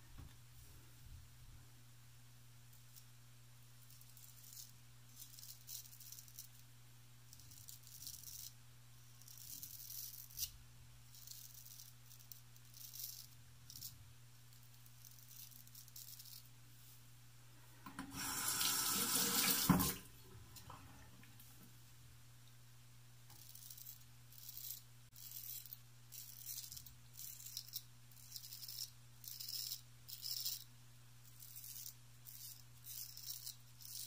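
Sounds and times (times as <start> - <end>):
tap running: 17.8 - 21.3
razor scraping stubble: 23.3 - 30.6, 31.3 - 34.0.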